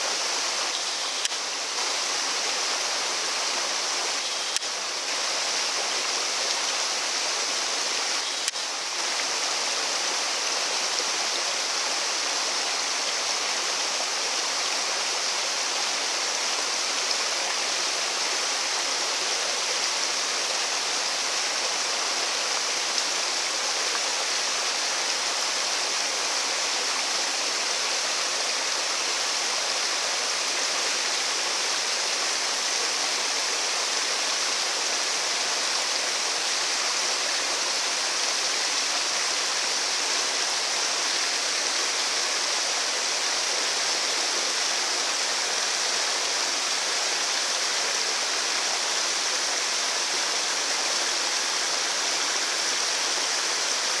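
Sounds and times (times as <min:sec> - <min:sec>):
small waterfall splashing: 0:00.0 - 0:54.0.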